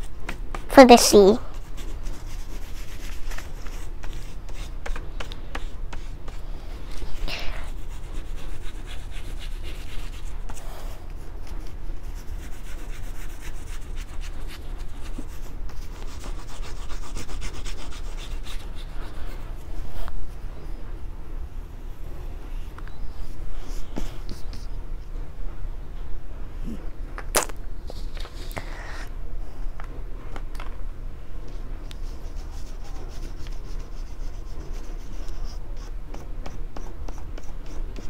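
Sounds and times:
oil pastel rubbing on paper: 1.5 - 6.4, 7.2 - 19.5, 32.0 - 35.9.

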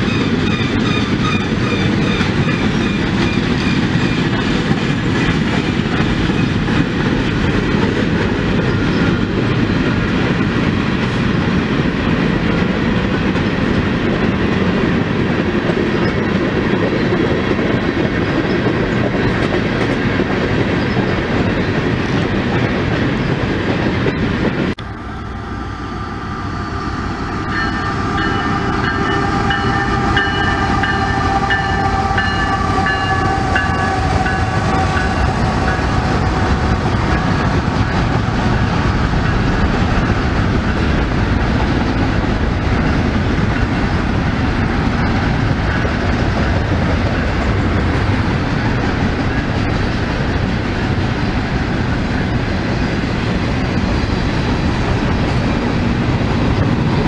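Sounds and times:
train wheels rumbling and clattering: 0.0 - 25.1, 25.9 - 57.0
locomotive horn: 27.2 - 36.5.

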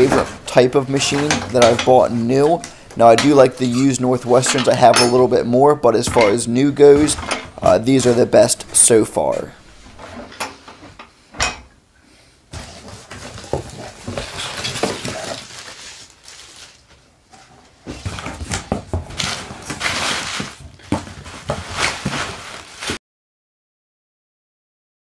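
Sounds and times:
bubble wrap crinkling: 12.5 - 23.0
cardboard boxes being handled: 12.6 - 16.7.

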